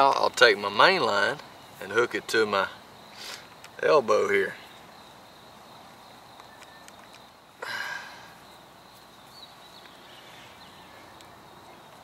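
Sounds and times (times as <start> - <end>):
high insect drone: 0.0 - 12.0
sharp breath out: 3.1 - 3.5, 7.6 - 8.4.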